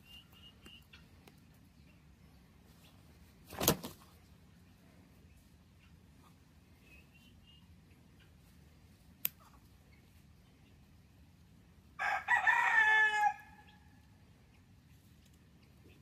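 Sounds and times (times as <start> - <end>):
rooster crowing: 12.0 - 13.8.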